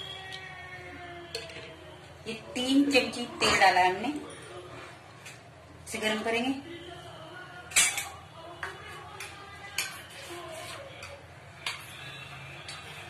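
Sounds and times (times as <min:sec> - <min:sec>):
metal kitchen utensils clinking: 0:07.7 - 0:08.2.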